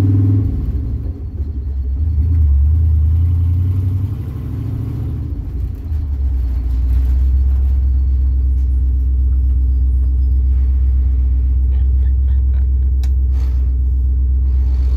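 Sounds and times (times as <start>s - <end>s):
engine low drone from inside cab: 0.0s - 14.9s.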